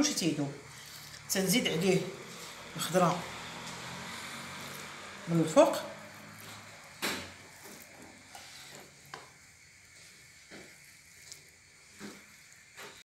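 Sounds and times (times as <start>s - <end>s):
vegetables pattering on a dish: 6.1s - 13.0s.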